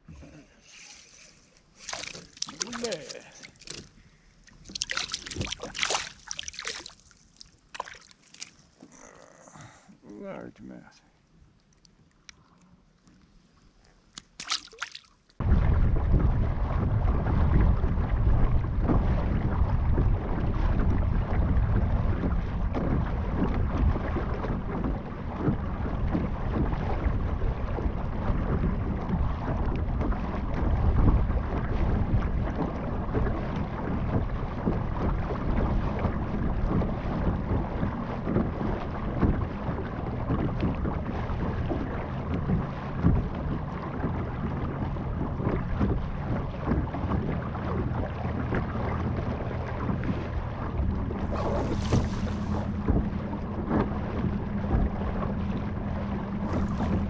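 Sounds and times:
water running along hull: 0:00.0 - 0:57.0
water splash: 0:01.7 - 0:03.9, 0:04.5 - 0:08.8, 0:14.1 - 0:57.0
wind buffeting microphone: 0:15.4 - 0:57.0.

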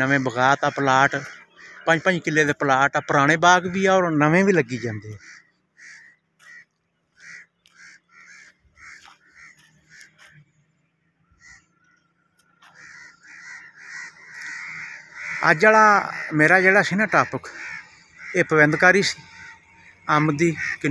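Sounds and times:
crows cawing: 0:00.0 - 0:10.6, 0:11.2 - 0:20.9.

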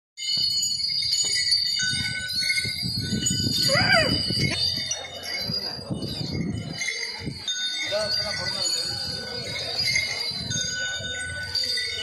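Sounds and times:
metal bells jingling: 0:00.2 - 0:12.0
high cry: 0:03.6 - 0:04.6.

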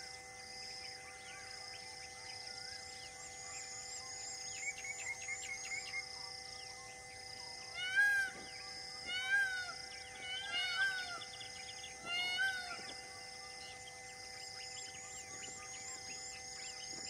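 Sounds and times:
steady background drone: 0:00.0 - 0:17.0
animal mewing calls: 0:07.7 - 0:11.4, 0:12.0 - 0:13.0.

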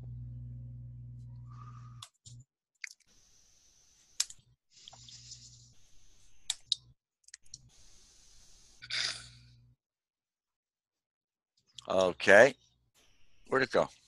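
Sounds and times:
hiss and low hum: 0:07.4 - 0:08.8.

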